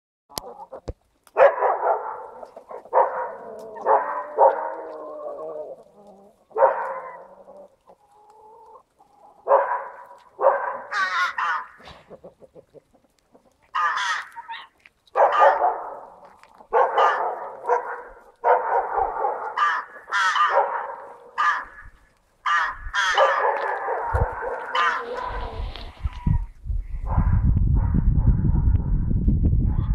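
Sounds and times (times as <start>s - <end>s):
hens calling: 0.3s - 1.1s, 1.8s - 26.6s
crow calling: 10.8s - 11.9s, 13.7s - 15.6s, 19.3s - 26.5s.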